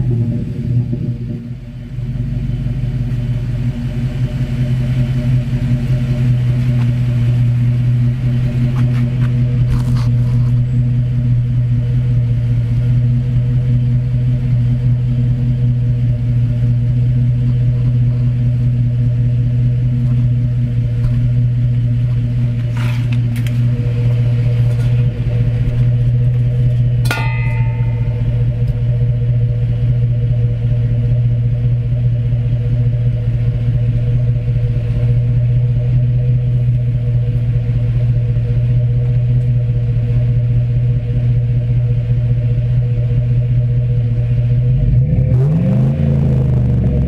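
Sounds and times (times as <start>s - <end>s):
engine idling: 0.0s - 47.0s
sharp metallic clink: 27.0s - 28.7s.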